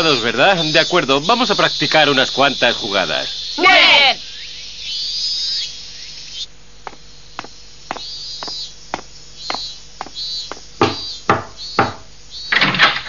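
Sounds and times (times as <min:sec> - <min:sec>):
high chirping: 0:00.0 - 0:12.6
footsteps: 0:06.8 - 0:11.1.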